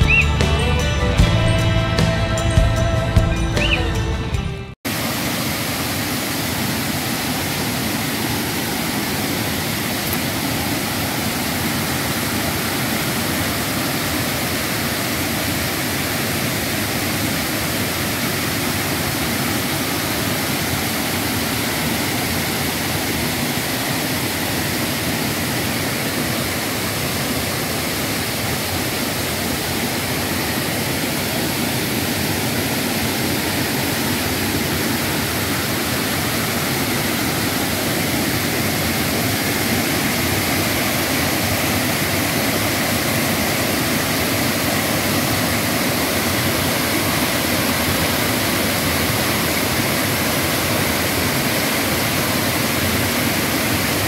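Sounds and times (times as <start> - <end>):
waterfall rushing over rocks: 4.9 - 54.0.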